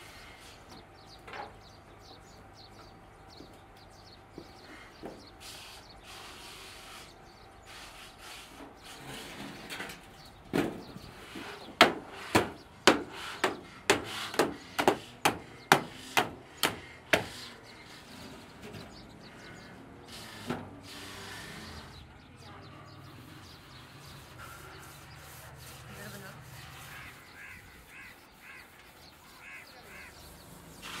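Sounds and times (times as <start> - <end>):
tamper pounding steel sheet: 10.5 - 17.6.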